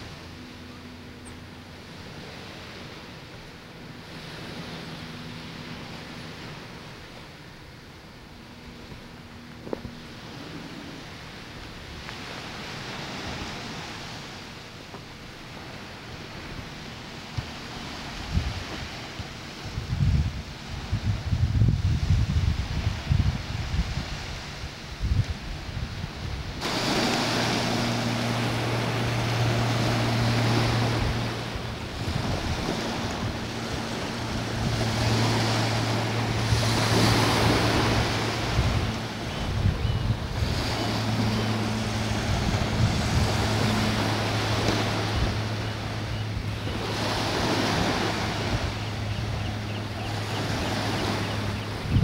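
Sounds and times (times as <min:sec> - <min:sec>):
small waves washing onto sand: 0:00.0 - 0:52.0
steady low hum: 0:00.0 - 0:52.0
wind buffeting microphone: 0:08.2 - 0:14.4, 0:15.0 - 0:52.0.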